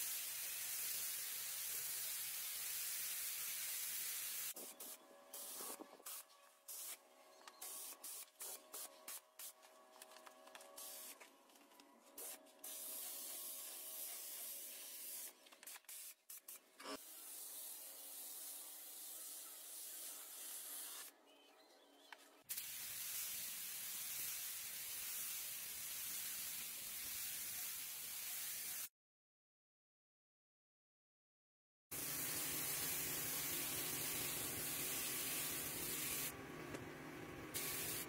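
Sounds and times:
paint spray gun hissing: 0.0s - 7.0s, 7.6s - 9.6s, 10.8s - 11.2s, 12.2s - 21.1s, 22.5s - 28.9s, 32.0s - 36.3s, 37.5s - 38.0s.

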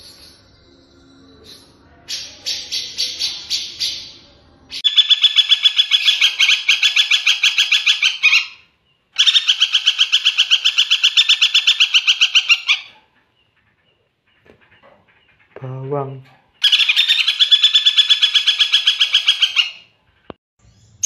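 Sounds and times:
caged bird calling: 1.6s - 21.0s
woodpecker rattling trills: 4.8s - 20.4s.

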